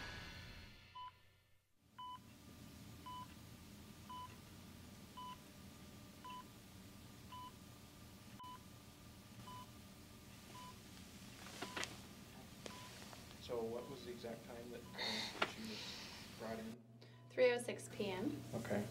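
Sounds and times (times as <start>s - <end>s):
low room hum: 1.9s - 18.9s
heart monitor beeping: 2.0s - 2.2s, 3.0s - 3.3s, 4.1s - 4.4s, 5.2s - 5.4s, 7.3s - 7.6s, 8.4s - 8.6s, 9.4s - 9.7s, 10.5s - 10.8s, 11.6s - 11.9s, 12.6s - 13.0s, 13.6s - 14.2s.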